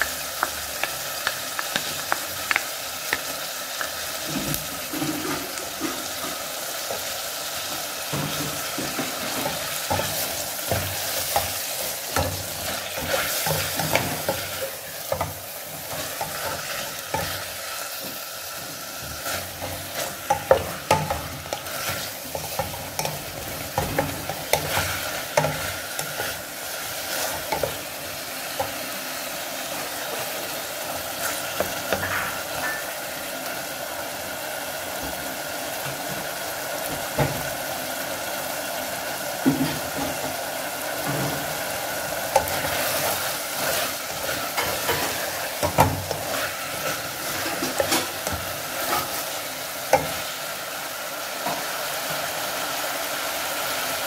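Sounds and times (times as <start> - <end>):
beef sizzling in a pot: 0.0 - 54.0
spatula scraping and knocking pan: 0.4 - 28.8, 42.3 - 50.3.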